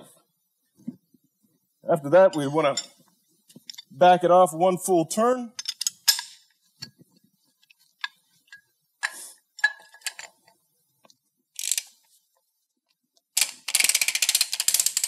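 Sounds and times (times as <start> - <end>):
rapid ratchet wrench clicking: 11.6 - 11.9, 13.4 - 15.0.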